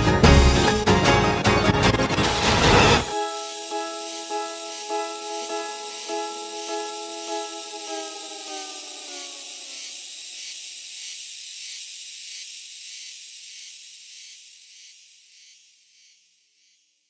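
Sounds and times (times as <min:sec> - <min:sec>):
song: 0:00.0 - 0:08.5
cicada drone: 0:03.0 - 0:17.0.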